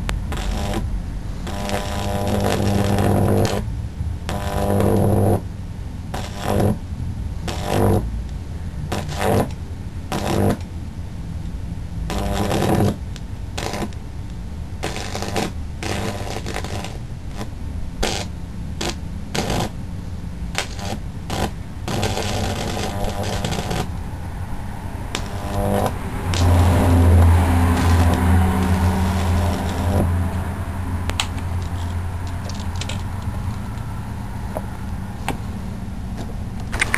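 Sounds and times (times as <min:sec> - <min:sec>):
electric arcs crackling: 0:00.0 - 0:05.5, 0:06.1 - 0:06.8, 0:07.4 - 0:08.1, 0:08.9 - 0:10.6, 0:12.1 - 0:19.8, 0:20.5 - 0:24.0, 0:25.1 - 0:33.9
transformer hum: 0:00.0 - 0:36.9.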